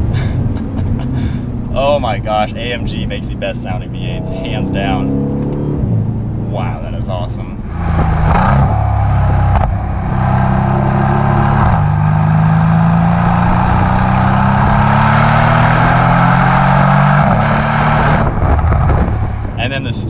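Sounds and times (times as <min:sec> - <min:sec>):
car exhaust accelerating: 0:00.0 - 0:20.0
exhaust crack: 0:06.8 - 0:20.0.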